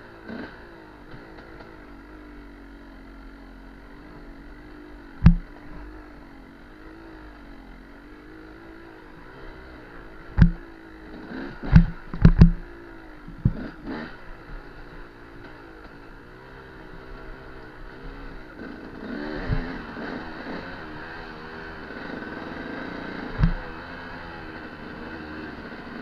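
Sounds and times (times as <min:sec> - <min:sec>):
dirt bike engine running: 0:00.0 - 0:26.0
sharp knocks of bike jolting: 0:10.4 - 0:10.6.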